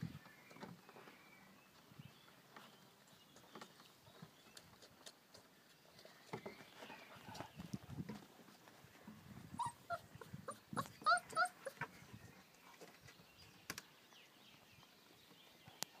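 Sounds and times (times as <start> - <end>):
puppies whimpering and yipping: 9.5 - 12.1.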